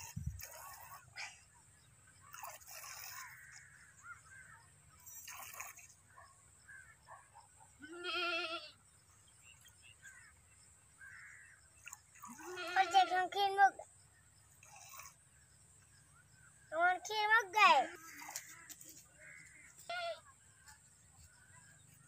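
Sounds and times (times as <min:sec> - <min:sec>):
goat bleating: 0:07.8 - 0:08.7, 0:12.2 - 0:13.2, 0:19.8 - 0:20.2.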